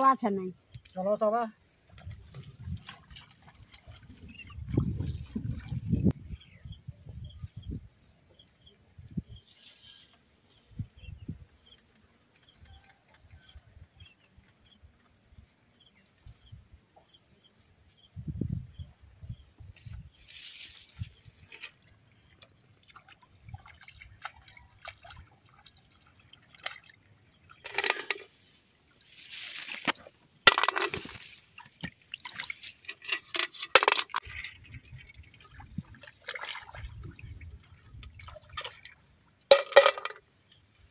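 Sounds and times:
water splashing and sloshing: 0:00.8 - 0:06.5, 0:19.8 - 0:40.9
footsteps through grass: 0:19.7 - 0:21.4, 0:28.3 - 0:30.2.

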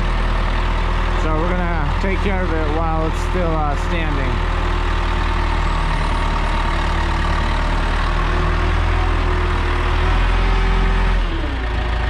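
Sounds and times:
forklift engine running: 0:00.0 - 0:12.0.

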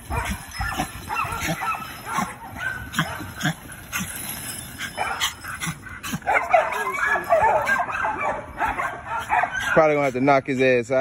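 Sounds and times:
chain dragged over concrete: 0:00.0 - 0:07.7
dogs yipping and whimpering: 0:00.0 - 0:11.0.

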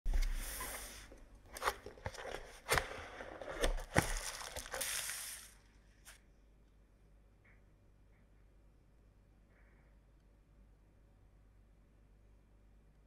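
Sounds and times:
wrapping crinkling and rustling: 0:00.1 - 0:06.2.

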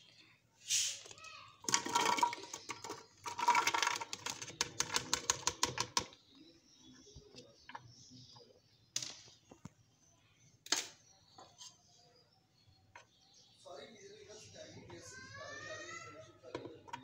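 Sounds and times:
vegetables clattering into blender jar: 0:01.6 - 0:06.1.

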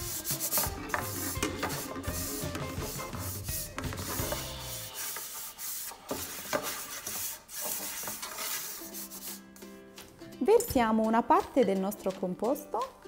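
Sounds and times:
hand rubbing sugar in metal pan: 0:00.0 - 0:09.5.

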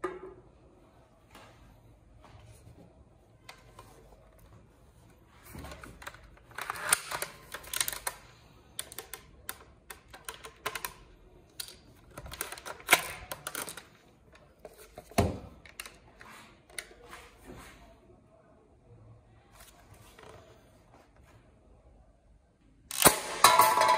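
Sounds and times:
plastic clicks and rattles: 0:05.7 - 0:16.1.

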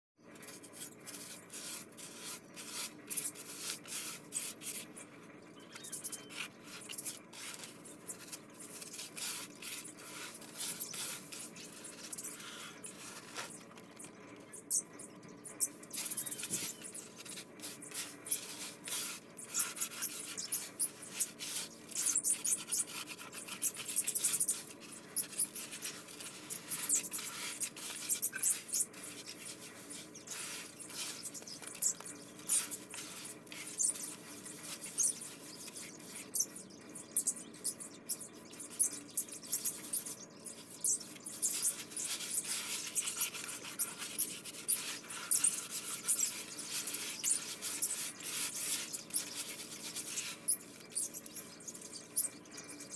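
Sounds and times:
fingers crumbling gritty mix: 0:00.3 - 0:05.0, 0:05.7 - 0:52.9.

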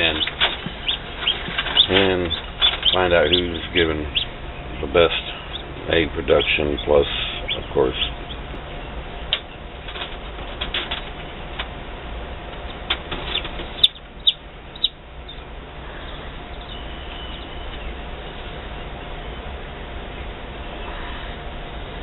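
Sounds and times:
chicks peeping: 0:00.0 - 0:10.1, 0:12.6 - 0:19.2
steady low hum: 0:00.0 - 0:22.0.

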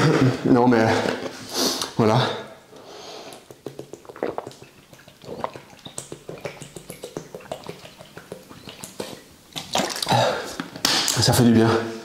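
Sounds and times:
man gulping water: 0:03.3 - 0:10.8.

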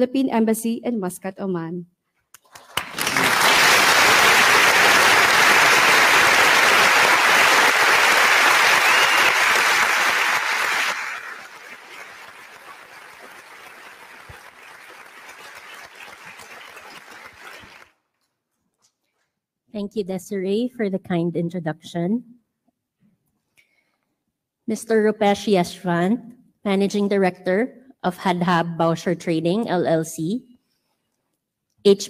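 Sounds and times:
audience applauding: 0:02.4 - 0:18.0.

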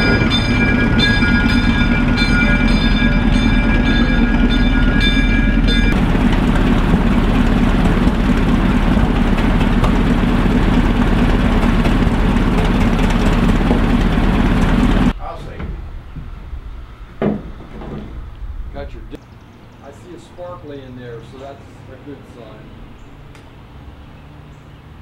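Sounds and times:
bell ringing: 0:00.0 - 0:06.0
locomotive engine running: 0:00.0 - 0:25.0.

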